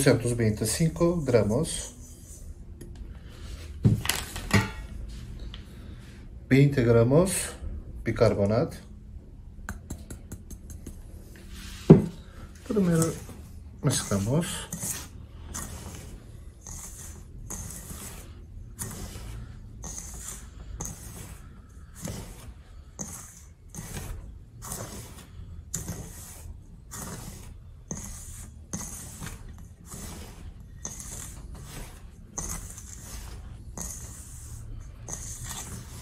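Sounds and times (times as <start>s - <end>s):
fingers scraping grains in metal bowl: 0.0s - 2.6s, 12.7s - 36.0s.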